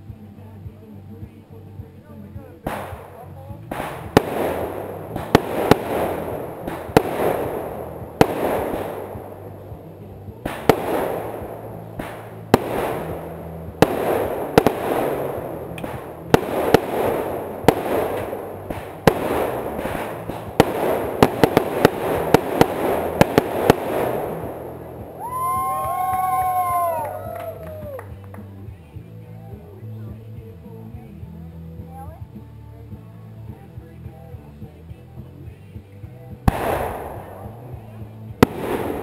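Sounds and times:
fireworks hissing rush: 2.6s - 27.1s
fireworks bangs: 2.6s - 28.5s, 36.4s - 39.0s.

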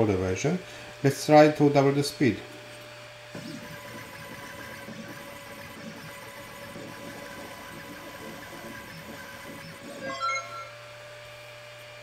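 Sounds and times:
stepper motors buzzing: 2.7s - 12.0s.

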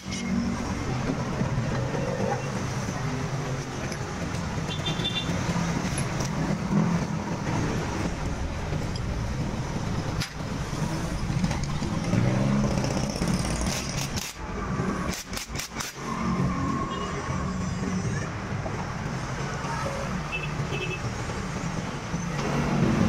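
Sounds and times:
road traffic rumble: 0.0s - 23.0s
impact wrench bursts: 12.8s - 16.0s.

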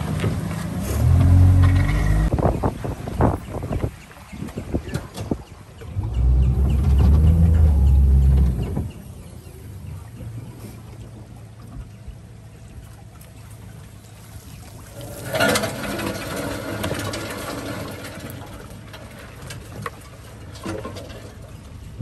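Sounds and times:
outboard motor idling: 5.8s - 22.0s.

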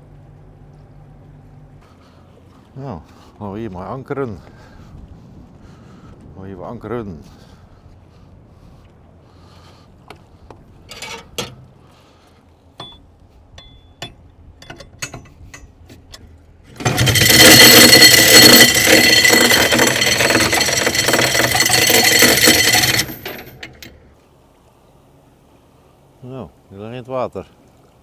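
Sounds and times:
anchor chain paying out: 10.9s - 11.7s, 12.8s - 24.1s
clicks and knocks: 13.6s - 24.0s.

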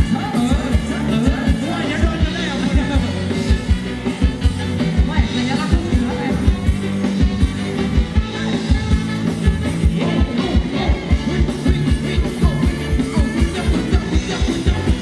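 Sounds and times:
person singing: 0.0s - 3.5s, 9.7s - 15.0s
live band dance music: 0.0s - 15.0s.

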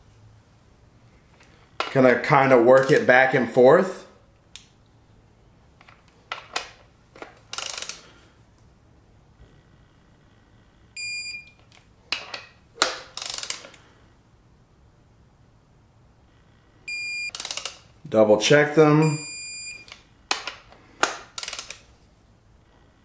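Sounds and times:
torque wrench ratcheting clicks: 7.5s - 8.1s, 13.1s - 13.8s, 17.3s - 17.9s, 21.3s - 21.8s
short high beep: 19.0s - 19.8s.

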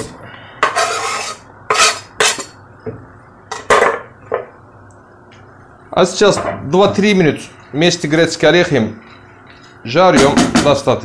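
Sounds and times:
knife scraping wooden board: 0.6s - 2.4s.

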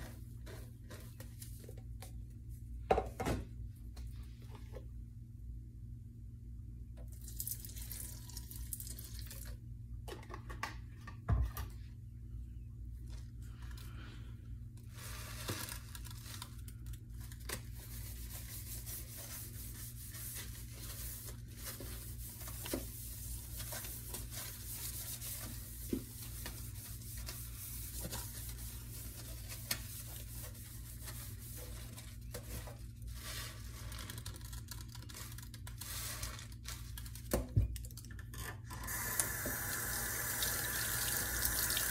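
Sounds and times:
sponge scrubbing steel sink: 18.1s - 31.9s.

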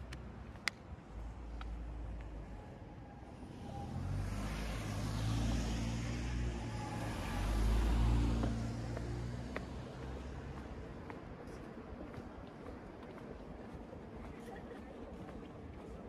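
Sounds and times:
car driving past: 3.4s - 10.4s.

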